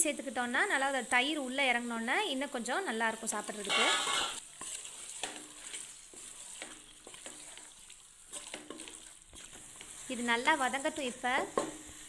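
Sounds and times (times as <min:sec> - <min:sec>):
food sizzling: 0:00.0 - 0:12.0
spatula scraping metal pot: 0:03.5 - 0:11.0.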